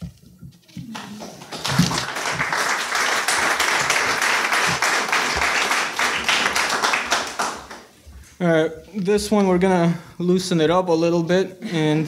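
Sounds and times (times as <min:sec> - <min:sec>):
audience applauding: 0:00.9 - 0:07.9.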